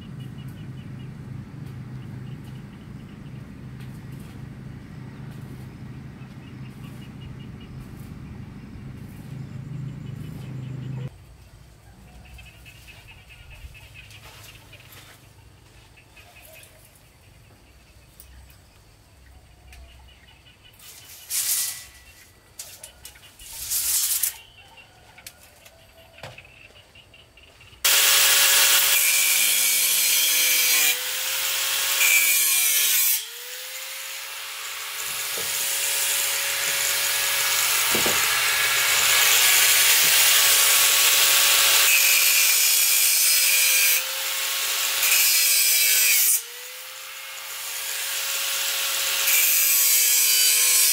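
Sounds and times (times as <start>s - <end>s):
angle grinder cutting metal: 20.8s - 22.9s, 23.5s - 24.4s, 27.9s - 50.9s.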